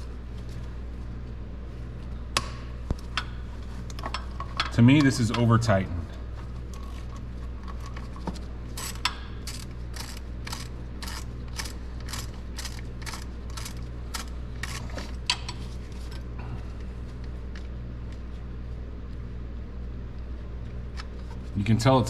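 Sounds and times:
steady low hum: 0:00.0 - 0:22.0
hand ratchet clicking: 0:08.8 - 0:14.9.

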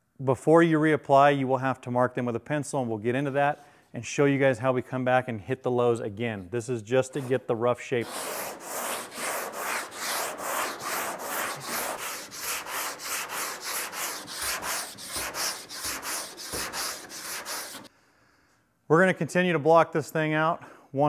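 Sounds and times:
hand sanding body filler: 0:07.0 - 0:17.9.

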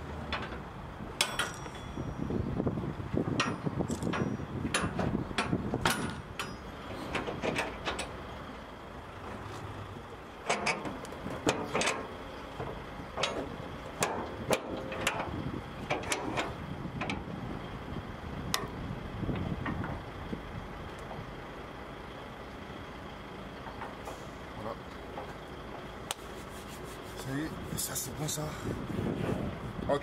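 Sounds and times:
steady low rumble: 0:00.0 - 0:30.0
metallic knocks and clatter: 0:00.2 - 0:02.4, 0:03.2 - 0:08.2, 0:10.4 - 0:17.3.

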